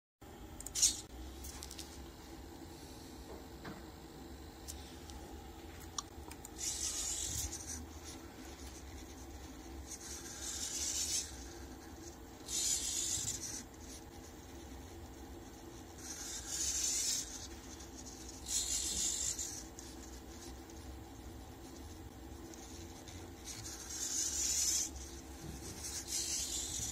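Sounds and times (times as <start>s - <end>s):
pen scratching across paper: 6.6s - 26.9s.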